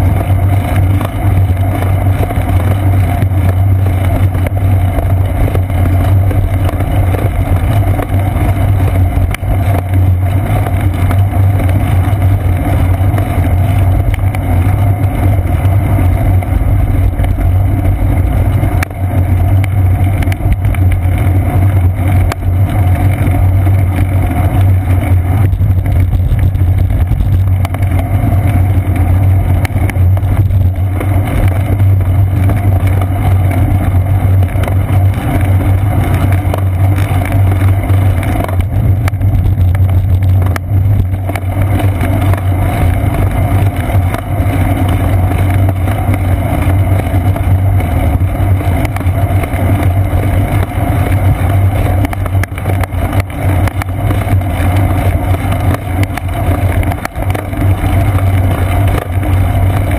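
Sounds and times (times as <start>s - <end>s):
road vibration rumble: 0.0s - 59.9s.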